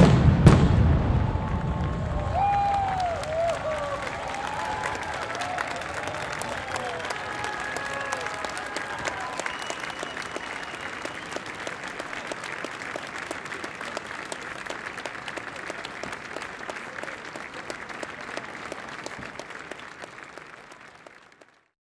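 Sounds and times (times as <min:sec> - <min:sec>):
large audience applauding: 0:01.2 - 0:21.8
high whistle tone: 0:09.3 - 0:11.5.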